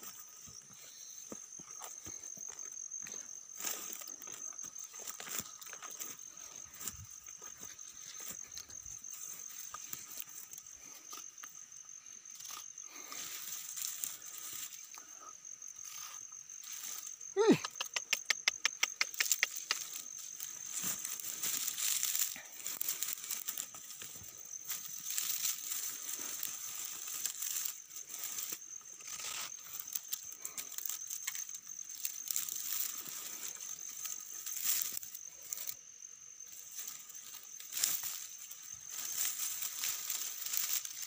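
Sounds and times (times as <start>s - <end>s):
rustling and crackling: 18.6s - 35.8s, 36.5s - 41.0s.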